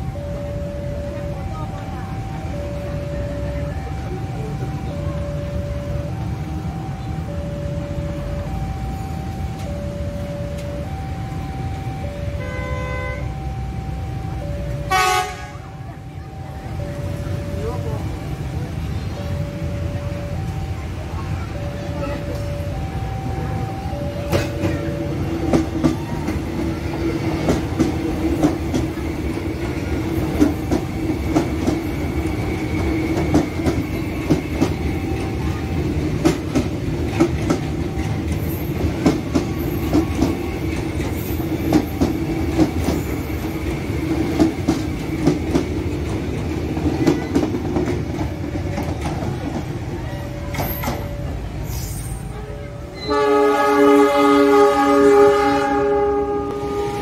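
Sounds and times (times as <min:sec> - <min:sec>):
level crossing bell: 0:00.0 - 0:53.1
train low hum: 0:00.0 - 0:57.0
train wheels clacking over joints: 0:22.2 - 0:52.3.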